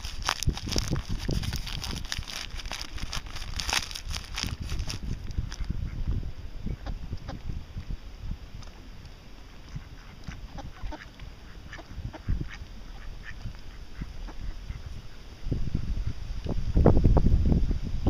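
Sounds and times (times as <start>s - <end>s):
ducks quacking: 9.5s - 15.3s.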